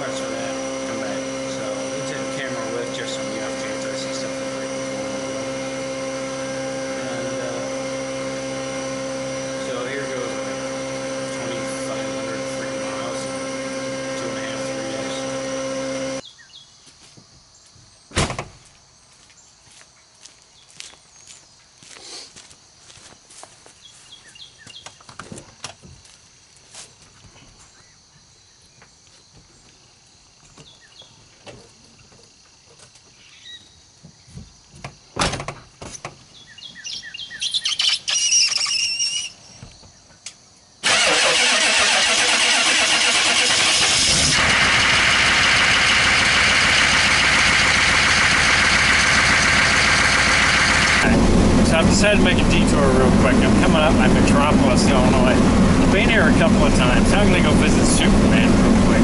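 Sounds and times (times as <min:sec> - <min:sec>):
pickup truck engine running: 0:00.0 - 0:16.2, 0:40.8 - 0:59.0
bird calling: 0:36.4 - 0:39.6.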